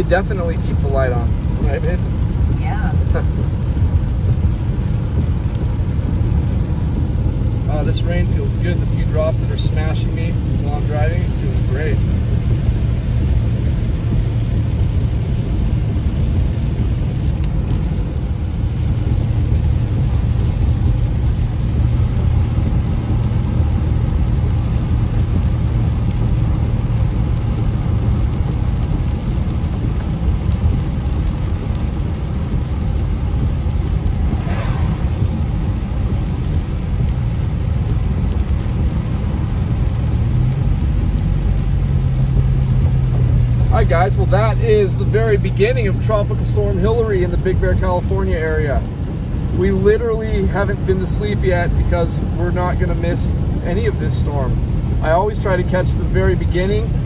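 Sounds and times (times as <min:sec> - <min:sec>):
engine and tyre rumble: 0:00.0 - 0:57.0
air rushing through window: 0:00.8 - 0:57.0
brief swish: 0:34.3 - 0:35.2.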